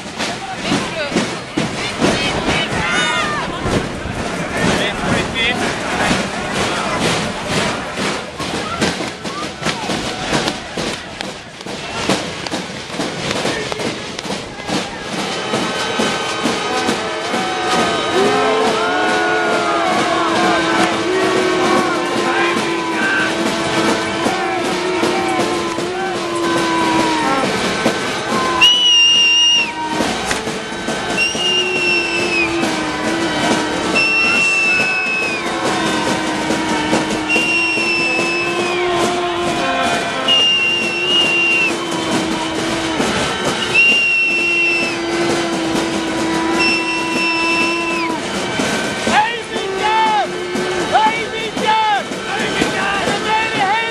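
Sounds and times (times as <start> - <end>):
banging and clatter: 0.0 - 53.9
blaring horn notes: 15.0 - 53.9
shrill whistle blasts: 28.3 - 30.2, 31.1 - 32.7, 33.9 - 35.5, 37.3 - 38.9, 40.2 - 42.4, 43.4 - 45.1, 46.4 - 48.2.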